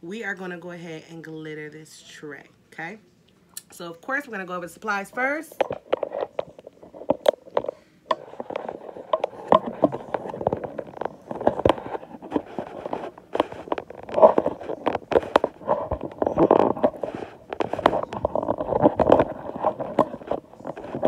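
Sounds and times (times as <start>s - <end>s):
microphone handling rustling: 5.2s - 21.0s.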